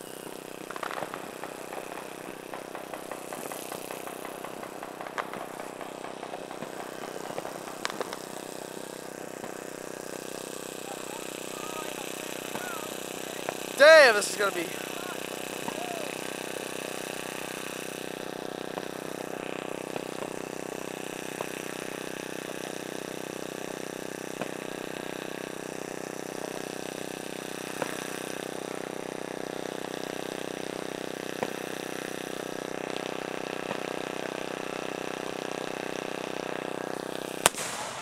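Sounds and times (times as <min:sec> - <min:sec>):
short sharp pops: 0:00.7 - 0:08.3, 0:37.4 - 0:38.0.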